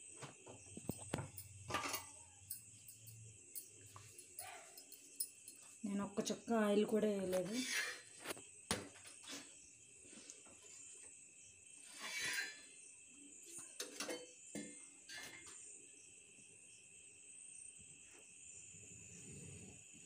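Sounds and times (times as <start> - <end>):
crickets chirping: 0.0 - 20.0
pan scraping off burner: 7.5 - 8.2, 11.8 - 12.7.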